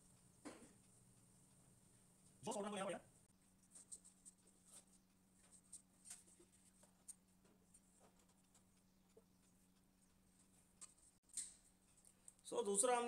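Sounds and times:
marker squeaking on whiteboard: 3.6s - 6.3s.

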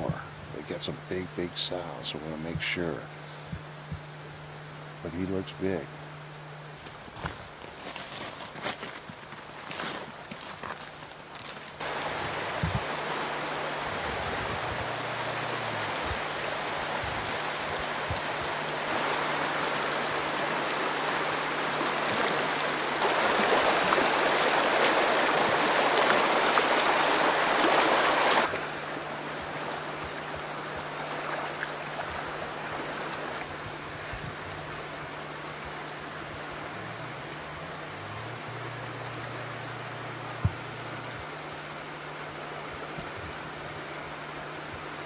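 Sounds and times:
low steady hum: 0.0s - 45.0s
stream rushing over stones: 11.8s - 33.6s.

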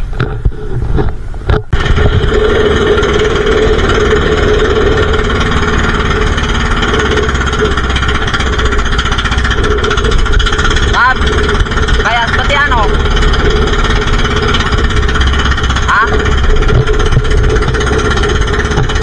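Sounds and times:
small boat engine running: 0.0s - 19.0s.

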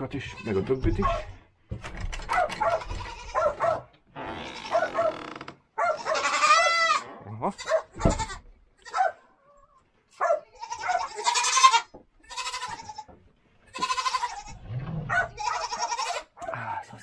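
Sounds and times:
goats bleating: 0.0s - 1.0s, 2.7s - 3.4s, 6.0s - 9.1s, 10.5s - 16.4s
short thump: 7.9s - 8.5s.

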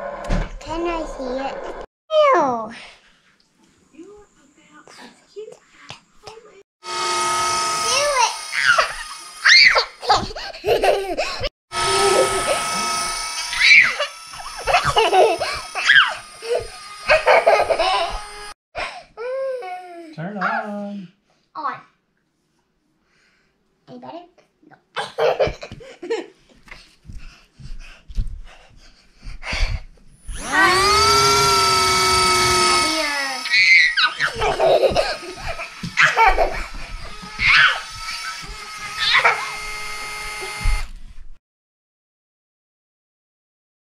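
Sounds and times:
small electric motor whining: 6.8s - 10.2s, 11.7s - 18.6s, 30.2s - 41.0s
toy whirring: 6.9s - 11.1s, 11.8s - 18.5s, 30.2s - 41.0s
children squealing and laughing: 7.7s - 18.6s, 30.4s - 39.7s.

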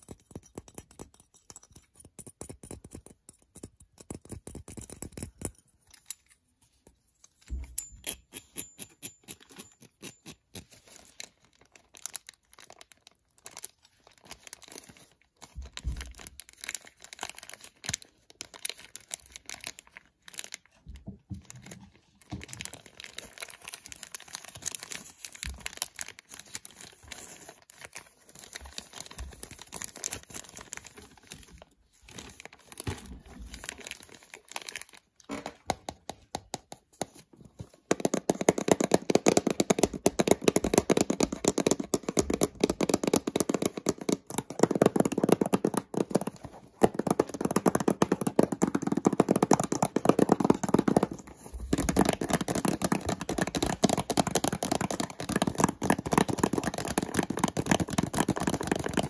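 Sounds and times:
plastic bag crinkling: 10.6s - 35.6s.

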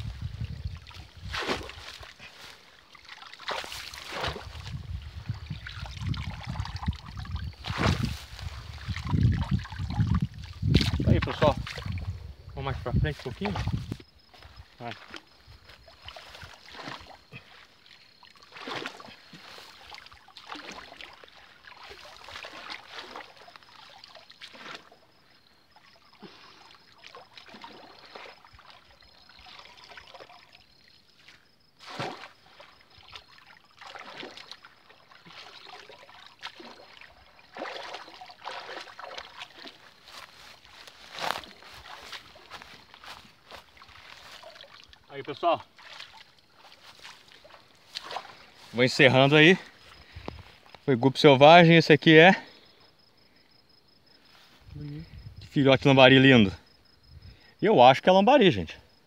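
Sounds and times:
feet wading in water: 0.0s - 12.2s, 13.1s - 50.9s
water sloshing and trickling: 0.0s - 51.6s
sharp splashes: 0.7s - 12.1s, 15.8s - 25.0s, 25.8s - 30.6s, 31.2s - 50.7s.

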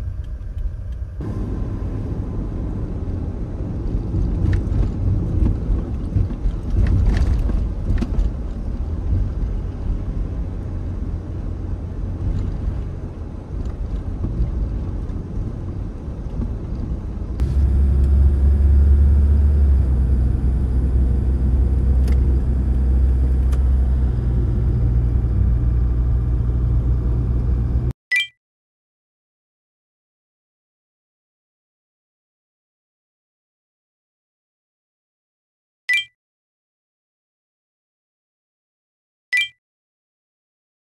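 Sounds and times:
car engine and road noise: 0.0s - 28.0s.

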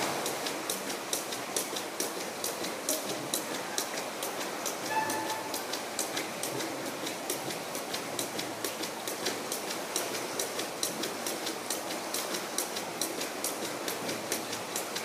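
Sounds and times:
skipping rope slapping tiled floor: 5.5s - 15.0s.

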